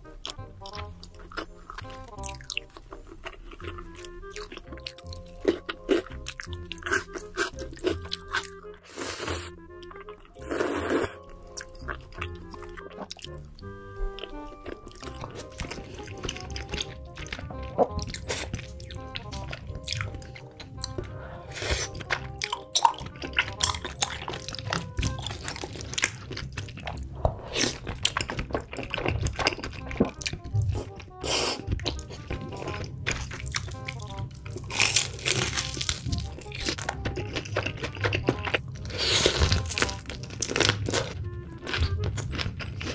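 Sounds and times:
background music: 0.0 - 42.9
chewing: 0.1 - 42.9.

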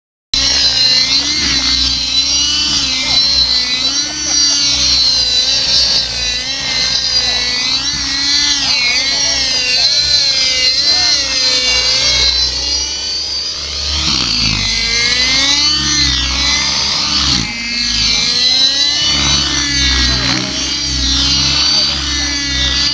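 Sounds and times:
rc helicopter rotor whine: 0.4 - 22.9.

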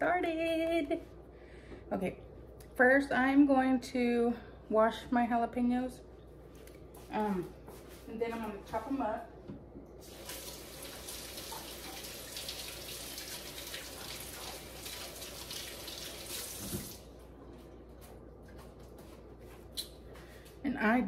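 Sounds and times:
faucet running into sink: 10.0 - 17.0.

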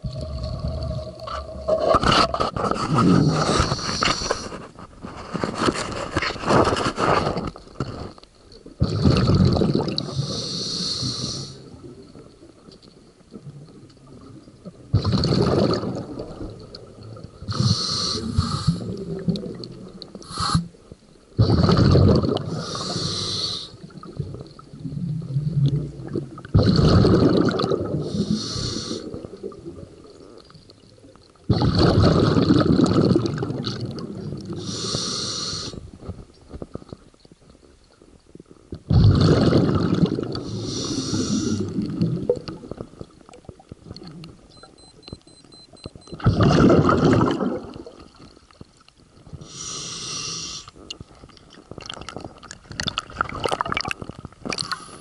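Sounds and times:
exhaled bubbles rushing: 0.0 - 4.0, 8.7 - 10.2, 13.3 - 17.5, 18.7 - 20.2, 21.4 - 22.9, 23.8 - 28.3, 31.5 - 34.6, 38.9 - 44.1, 46.2 - 48.2, 51.6 - 54.8
regulator air hiss: 17.5 - 18.8, 22.6 - 23.8, 28.1 - 29.0, 34.6 - 35.8, 40.5 - 41.6, 49.5 - 50.7.

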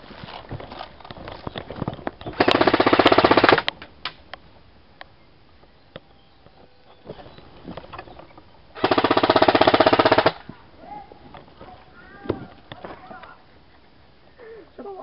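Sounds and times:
rustling: 0.0 - 2.7
airsoft rifle full-auto burst: 2.4 - 3.7, 8.8 - 10.4.

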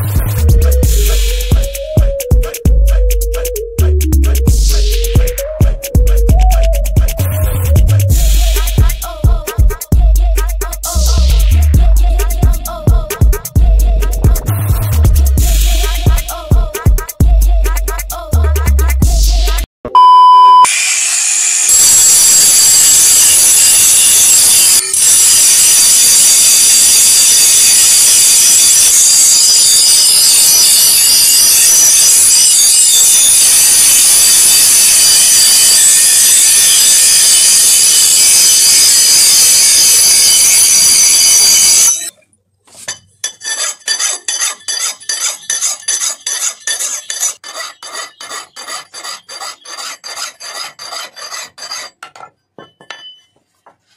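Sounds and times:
angle grinder grinding steel: 20.7 - 42.1, 42.8 - 52.2
hand file rasping metal: 42.7 - 52.2.

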